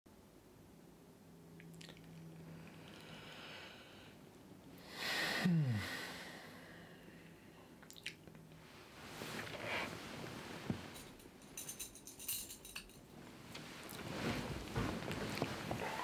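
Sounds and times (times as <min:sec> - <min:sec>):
man yawning: 0:05.1 - 0:06.2.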